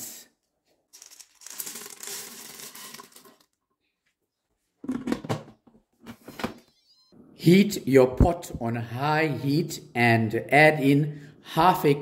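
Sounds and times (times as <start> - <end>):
dry beans pouring into pot: 1.0 - 3.6.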